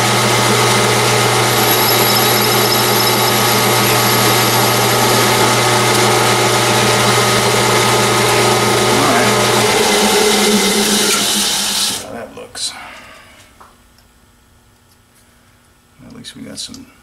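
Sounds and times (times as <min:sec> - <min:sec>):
metal lathe running: 0:00.0 - 0:12.0.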